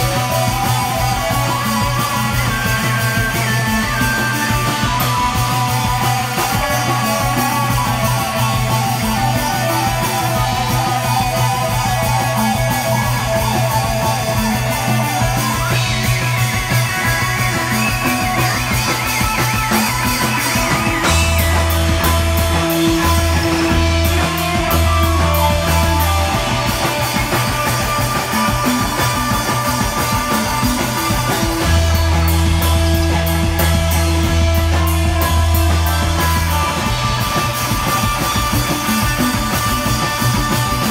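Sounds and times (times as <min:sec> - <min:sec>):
psychedelic rock band playing: 0:00.0 - 0:40.9
heavy deep bass notes: 0:20.6 - 0:38.2.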